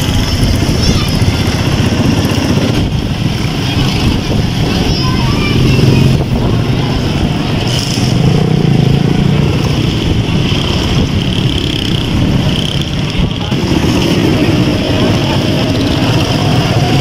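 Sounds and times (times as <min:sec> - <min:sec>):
small vehicle engine running: 0:00.0 - 0:17.0
street traffic noise: 0:00.0 - 0:17.0.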